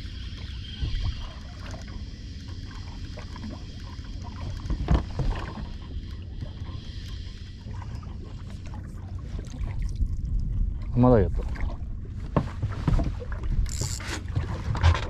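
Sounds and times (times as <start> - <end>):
water noise: 0.0 - 15.0
wind: 0.0 - 15.0
fishing reel winding: 13.7 - 14.1.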